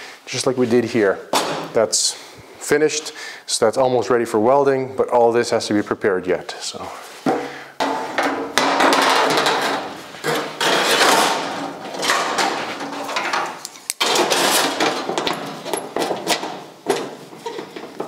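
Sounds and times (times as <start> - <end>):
steel panel clanging and scraping: 7.8 - 18.0.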